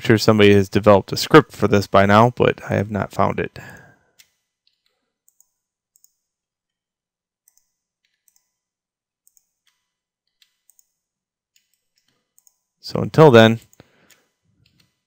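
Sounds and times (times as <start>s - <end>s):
computer mouse clicks: 4.2s - 6.2s, 7.4s - 8.5s, 9.2s - 11.0s, 11.6s - 12.6s, 13.6s - 15.0s.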